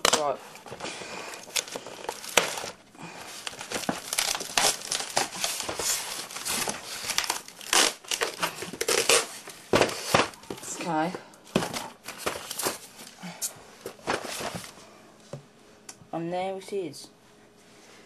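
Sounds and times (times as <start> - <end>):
packaging crinkling and rustling: 0.0 - 13.2, 13.8 - 14.8.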